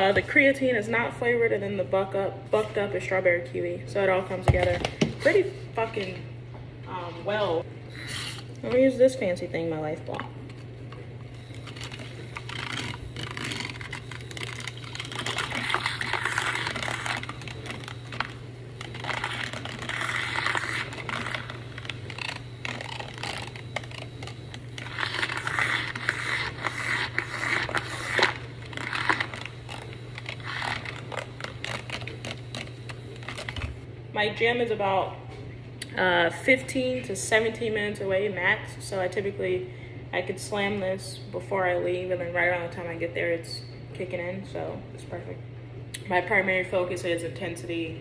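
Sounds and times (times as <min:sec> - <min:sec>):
milk frother motor hum: 0:10.0 - 0:33.9.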